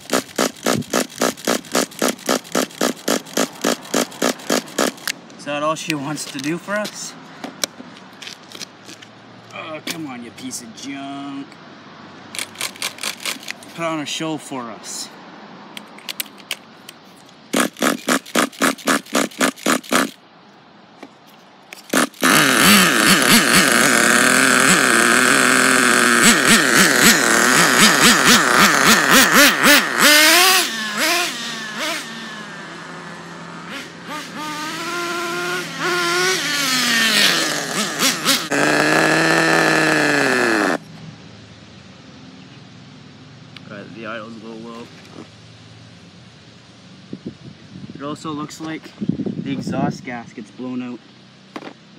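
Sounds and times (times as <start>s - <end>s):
nitro engine revving: 0.0s - 5.6s, 17.5s - 20.2s, 21.7s - 41.0s.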